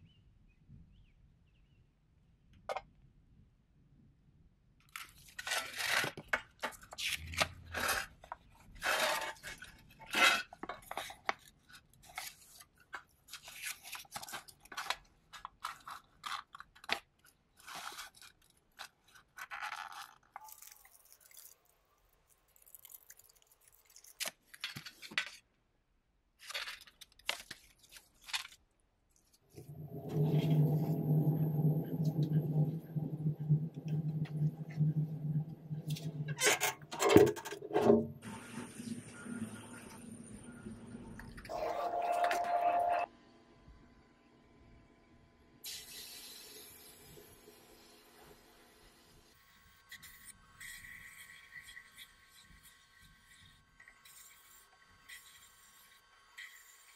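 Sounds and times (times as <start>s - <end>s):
sandblast cabinet mechanical hum: 29.6s - 36.4s.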